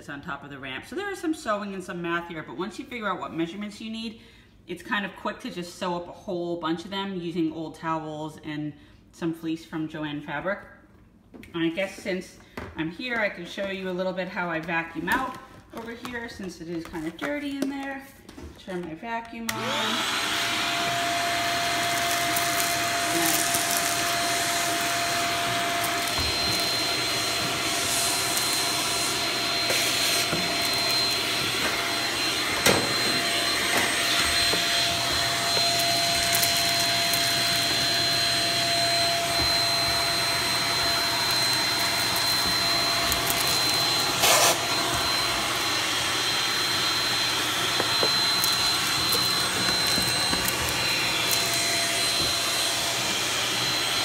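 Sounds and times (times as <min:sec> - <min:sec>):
handheld vacuum whining: 0:19.4 - 0:54.0.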